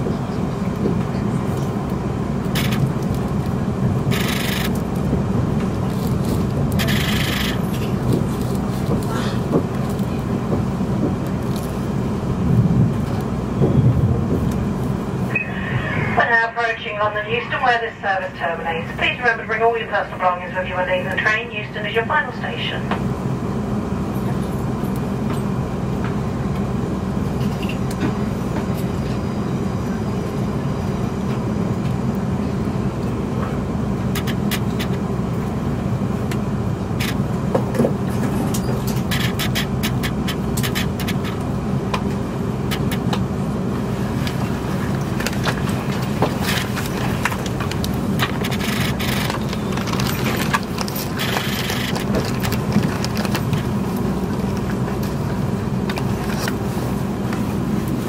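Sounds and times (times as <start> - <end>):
train interior hum and rumble: 0.0 - 58.0
wheels clicking and scraping: 38.2 - 41.4, 44.2 - 53.7.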